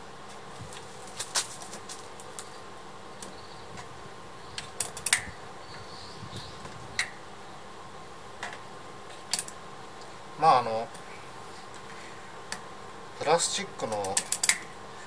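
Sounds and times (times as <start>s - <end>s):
faint steady hum: 0.0s - 15.0s
tool clicks and taps on metal: 13.9s - 14.7s.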